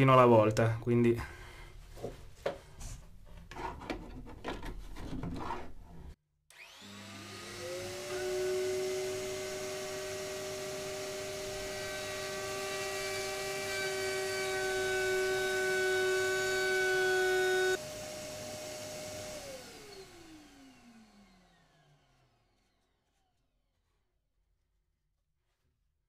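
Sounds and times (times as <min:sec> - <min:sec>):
motor winding down: 0:06.5 - 0:23.0
trim router whining: 0:06.5 - 0:23.3.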